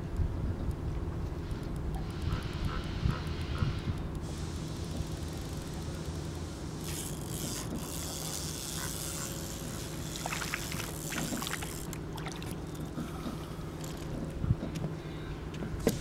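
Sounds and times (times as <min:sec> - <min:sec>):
low engine drone: 0:01.4 - 0:16.0
fish splashing at water surface: 0:10.0 - 0:12.8.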